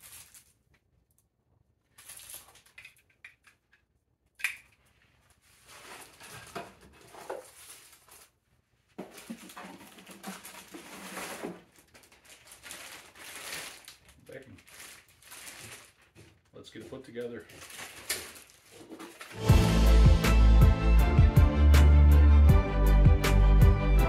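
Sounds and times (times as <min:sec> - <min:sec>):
cardboard and packaging rustling: 0:00.0 - 0:00.7, 0:01.8 - 0:03.2, 0:04.8 - 0:19.4
plastic wrap crinkling: 0:00.0 - 0:00.8, 0:01.8 - 0:03.2, 0:04.7 - 0:19.4.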